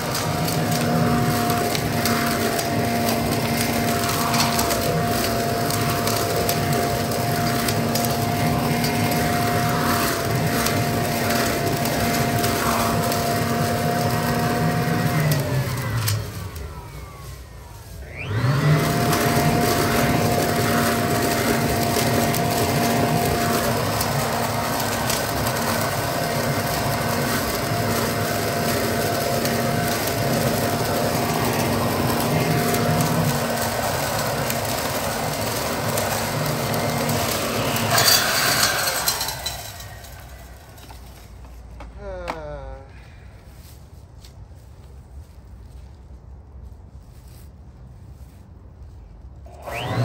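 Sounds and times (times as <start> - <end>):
leaf blower vac whine and hum: 0.0 - 45.9, 48.1 - 50.0
leaves rattling: 0.0 - 50.0.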